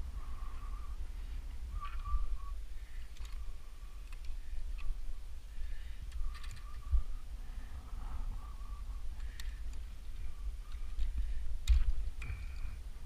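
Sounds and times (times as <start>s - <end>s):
wind rumbling on microphone: 0.0s - 13.0s
wire clicks and scrapes: 6.0s - 7.0s, 9.2s - 12.8s.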